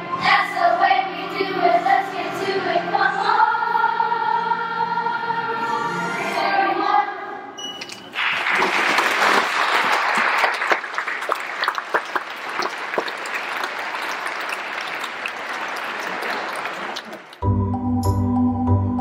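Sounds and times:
audience applauding: 8.1s - 17.4s.

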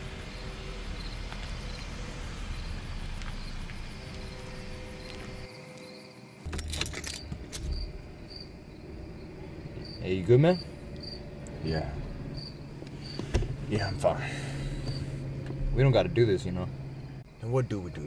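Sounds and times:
crickets chirping: 0.0s - 18.0s
jangling and clicking: 6.5s - 7.8s.

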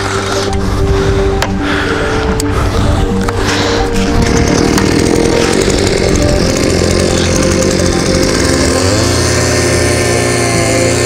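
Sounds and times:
two-stroke cultivator engine: 0.0s - 11.0s.

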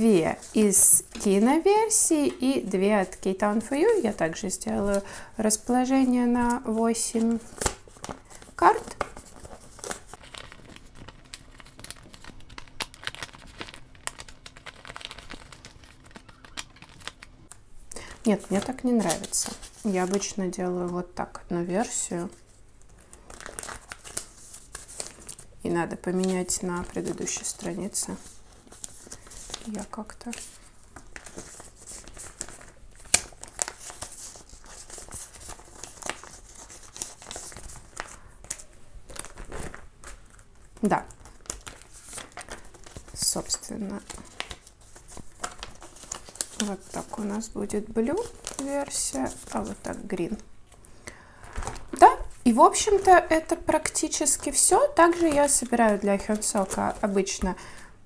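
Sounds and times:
plastic sleeves and paper rustling: 0.0s - 57.9s.

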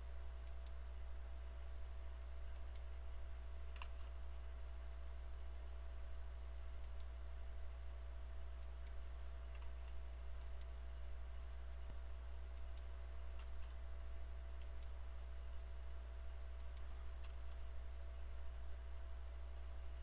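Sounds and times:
steady low hum: 0.0s - 20.0s
computer mouse clicking: 0.4s - 0.8s, 2.5s - 2.9s, 3.7s - 4.2s, 6.8s - 7.2s, 8.6s - 10.8s, 12.5s - 13.8s, 14.6s - 15.0s, 16.6s - 17.7s.

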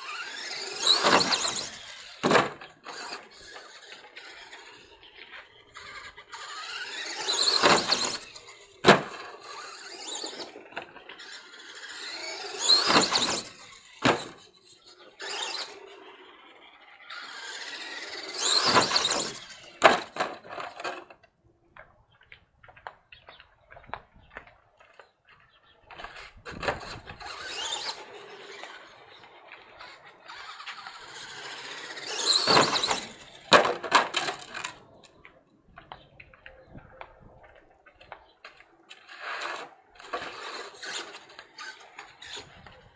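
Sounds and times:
toy truck crashing on landing: 0.0s - 21.2s, 26.0s - 34.8s, 39.0s - 42.9s
toy truck motor whining: 0.0s - 21.2s, 25.6s - 35.1s, 38.9s - 42.9s.

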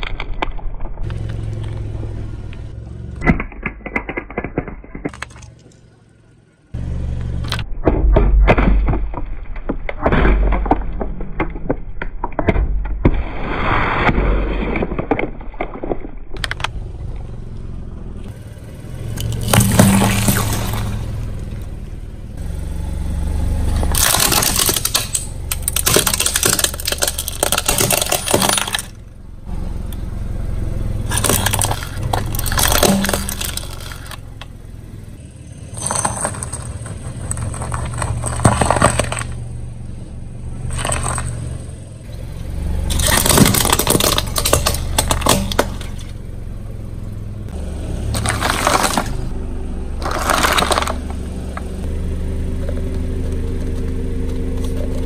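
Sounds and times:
low steady rumble: 0.0s - 3.4s, 15.9s - 55.0s
vegetables squashing: 19.2s - 21.0s, 23.9s - 29.0s, 31.1s - 34.2s, 40.6s - 41.5s, 42.9s - 46.1s, 48.1s - 49.3s, 50.0s - 51.1s
cans crumpling under tyre: 23.9s - 28.9s, 31.1s - 34.2s, 35.8s - 39.4s, 40.7s - 41.4s, 42.9s - 46.1s, 48.1s - 49.3s, 50.0s - 51.1s
plastic toy cracking: 23.9s - 29.0s, 31.1s - 34.2s, 42.9s - 45.9s.

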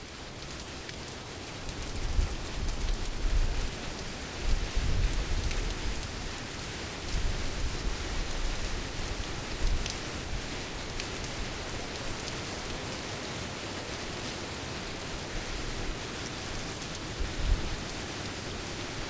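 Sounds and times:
rain falling: 0.0s - 19.0s
rain drop ticks: 0.4s - 4.0s, 5.4s - 6.1s, 9.6s - 10.0s.

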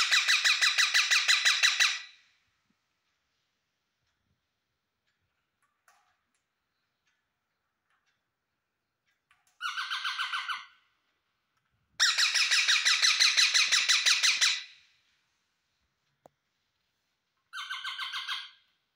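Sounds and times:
parakeet calling rapidly: 0.0s - 2.1s, 9.6s - 10.7s, 12.0s - 14.8s, 17.5s - 18.6s.

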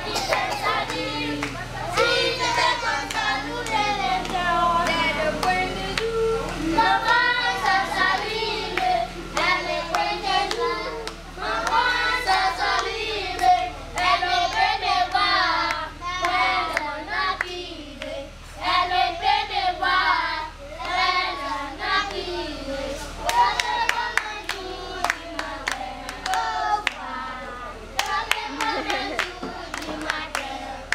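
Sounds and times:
children singing together: 0.0s - 30.9s
hand claps: 28.0s - 30.5s.

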